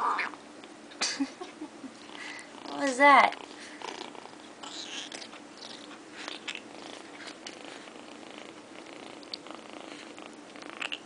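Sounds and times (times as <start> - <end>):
kitten purring: 2.0 - 11.0
chewing clicks: 5.0 - 11.0.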